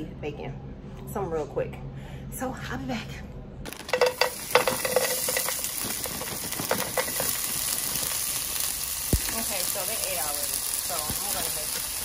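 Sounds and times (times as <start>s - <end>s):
potatoes sizzling in a frying pan: 3.7s - 12.0s.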